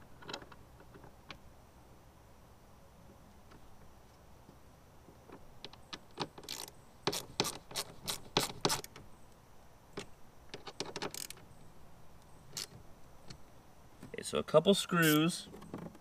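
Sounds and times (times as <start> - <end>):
sharp metallic clicks of tools: 15.0 - 15.3.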